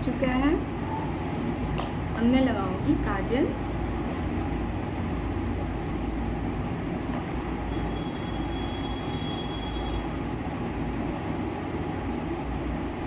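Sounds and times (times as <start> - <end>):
faint high whine: 7.6 - 10.2.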